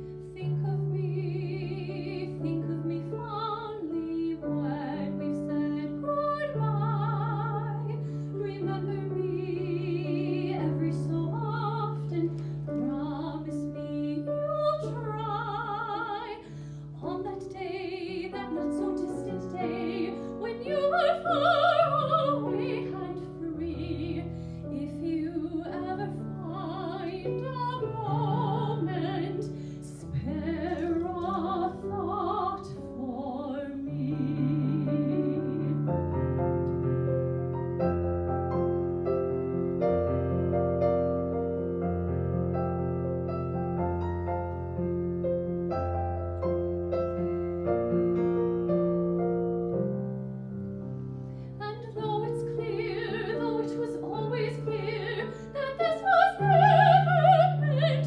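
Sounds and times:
grand piano: 0.0 - 58.0
woman singing operatic ballad: 0.1 - 36.2, 51.6 - 58.0.

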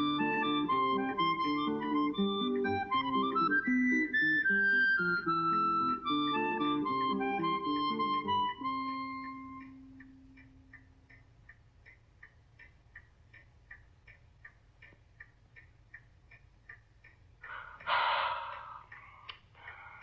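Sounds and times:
held music notes: 0.0 - 11.1
steady clock-like ticking: 0.0 - 20.0.

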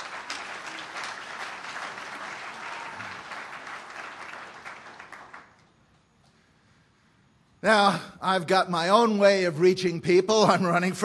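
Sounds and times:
audience applauding: 0.0 - 5.8.

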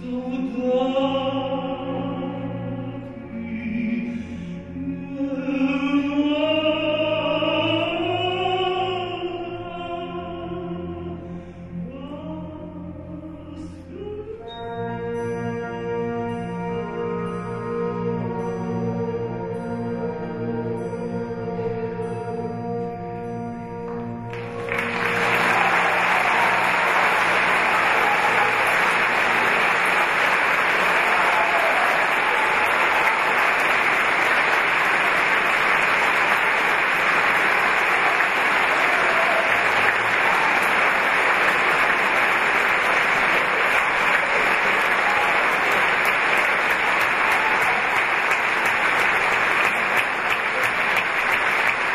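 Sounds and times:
audience applause: 24.3 - 51.9.

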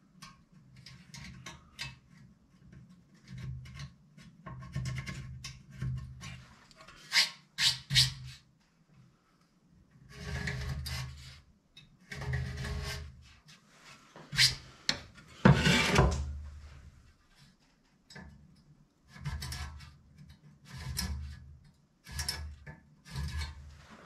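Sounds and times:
hand tool scraping radiator fins: 15.4 - 16.2.

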